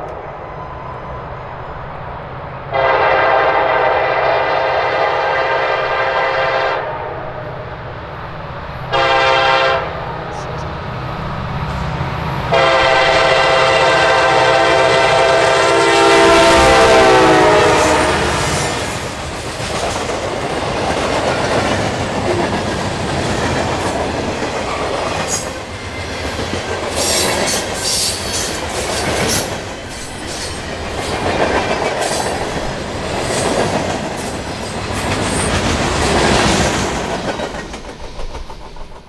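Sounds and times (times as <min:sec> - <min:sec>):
train wheels clacking on rails: 0:12.2 - 0:39.0.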